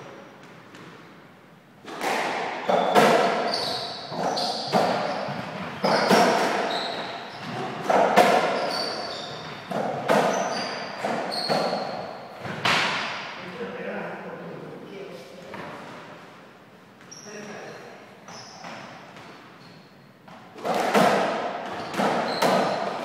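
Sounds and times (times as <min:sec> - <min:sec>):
rackets striking ball: 0:01.8 - 0:13.3, 0:20.3 - 0:23.0
short high squeaks: 0:02.7 - 0:07.6, 0:08.4 - 0:12.2, 0:17.1 - 0:18.7.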